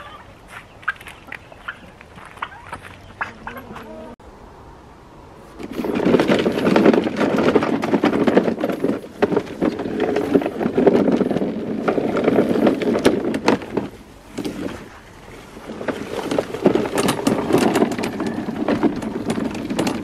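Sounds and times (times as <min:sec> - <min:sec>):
stems clattering on mower blade: 0:05.6 - 0:14.9, 0:15.6 - 0:20.0.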